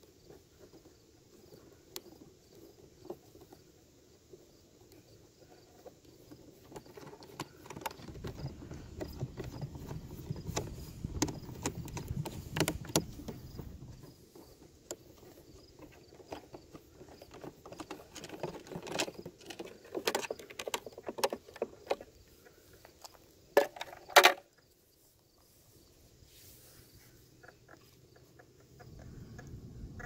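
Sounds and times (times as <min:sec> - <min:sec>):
faint insect chirping: 0:00.0 - 0:30.0
clicks and knocks of handling: 0:04.3 - 0:24.5.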